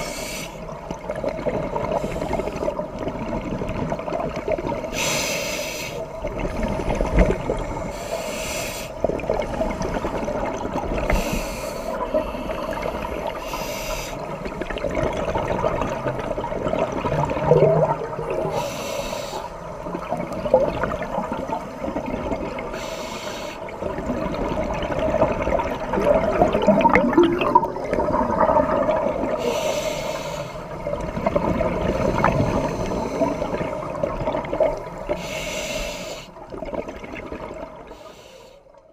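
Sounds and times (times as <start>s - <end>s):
regulator breathing hiss: 0.0s - 0.7s, 4.9s - 6.2s, 7.9s - 9.0s, 11.1s - 12.6s, 13.4s - 14.3s, 18.5s - 19.6s, 22.7s - 23.7s, 29.4s - 30.7s, 35.2s - 36.4s, 37.9s - 38.7s
exhaled air bubbling: 0.0s - 5.3s, 5.9s - 23.0s, 23.6s - 38.1s
muffled water noise: 0.0s - 38.9s.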